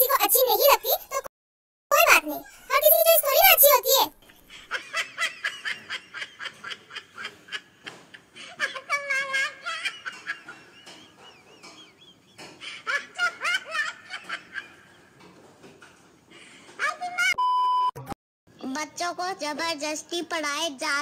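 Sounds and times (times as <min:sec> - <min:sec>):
people laughing: 0:04.3 - 0:15.3.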